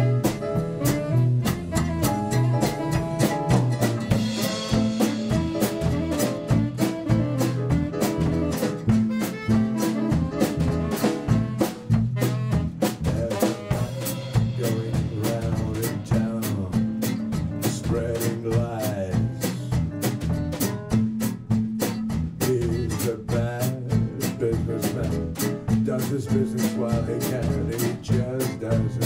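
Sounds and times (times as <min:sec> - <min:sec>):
saxophone: 0:00.0 - 0:19.4
drum kit steady beat: 0:00.0 - 0:29.0.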